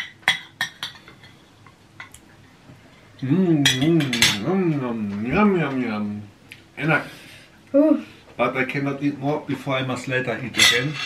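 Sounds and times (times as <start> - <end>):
man humming while eating: 3.2 - 5.4.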